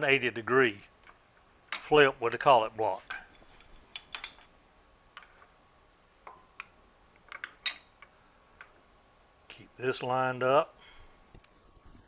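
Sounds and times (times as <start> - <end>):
light metal clicks and clinks: 7.3 - 8.7.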